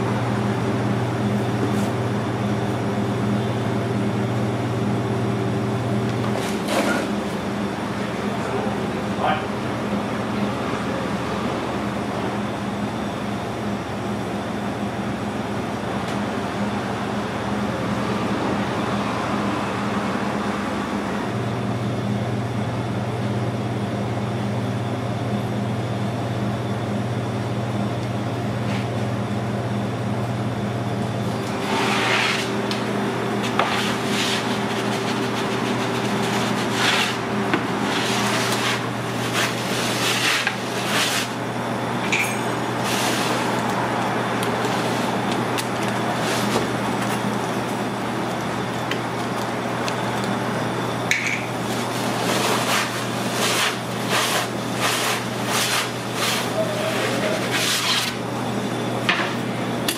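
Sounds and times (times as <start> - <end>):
kitchen equipment humming: 0.0 - 59.9
wooden peel scraping oven: 6.2 - 7.5, 31.3 - 41.5, 42.2 - 43.8, 44.4 - 47.8, 51.4 - 58.3.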